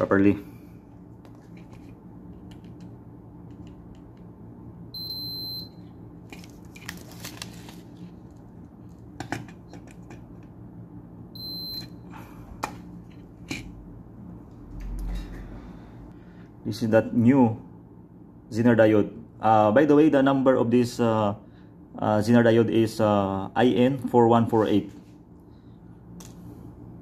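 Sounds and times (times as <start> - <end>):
multimeter continuity beeps: 5.0 - 5.9, 11.4 - 12.0.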